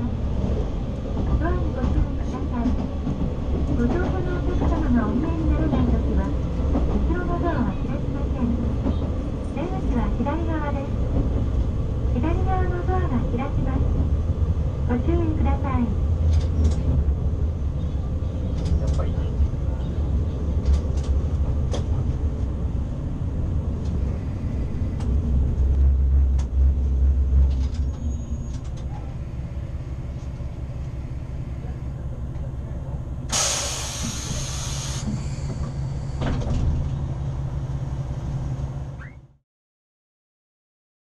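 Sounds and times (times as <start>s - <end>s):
diesel railcar engine rumbling: 0.0s - 39.4s
compressed air hiss: 33.3s - 35.3s.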